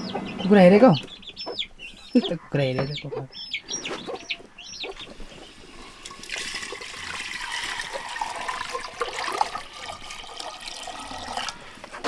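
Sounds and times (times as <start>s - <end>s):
water pouring into metal pot: 5.8s - 11.6s.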